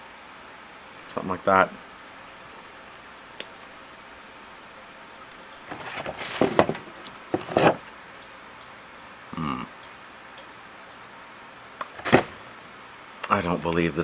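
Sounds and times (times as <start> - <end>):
plastic rubbing and scraping: 5.7 - 7.8, 11.9 - 12.4.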